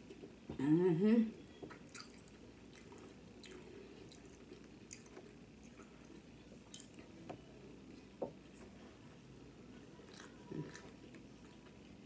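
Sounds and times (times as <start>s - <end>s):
mouth chewing sounds: 1.7s - 7.2s.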